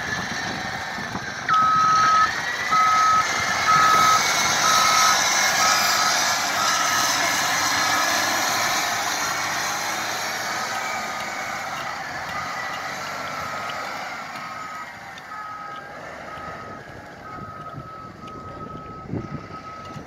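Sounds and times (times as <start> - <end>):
grader engine running: 0.0 - 20.0
backup alarm beeping: 1.5 - 6.8, 14.4 - 20.0.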